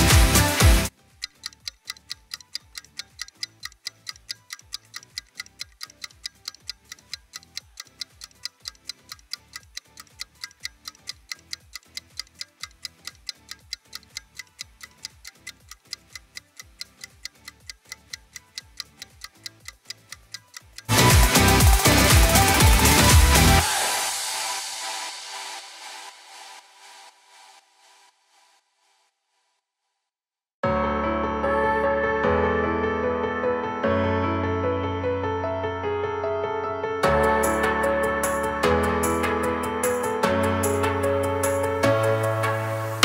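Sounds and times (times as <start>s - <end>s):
dance music: 0.0s - 0.9s, 20.9s - 25.1s
timer ticking: 0.0s - 23.6s, 39.8s - 41.8s.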